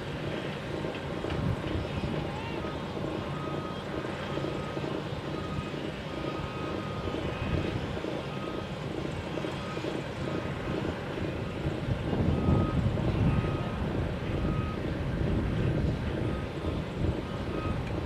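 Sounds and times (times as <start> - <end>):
diesel construction machinery running: 0.0 - 18.0
reversing alarm beeping: 2.2 - 11.3, 12.3 - 14.9, 17.3 - 18.0.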